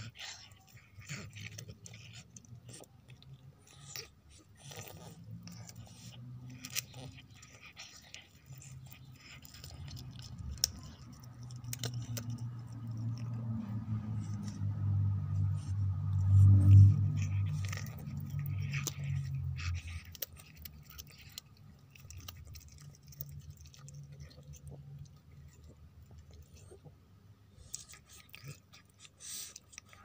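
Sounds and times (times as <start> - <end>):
cat crunching food: 0.0 - 26.9, 27.5 - 30.0
low rumble: 9.2 - 20.4.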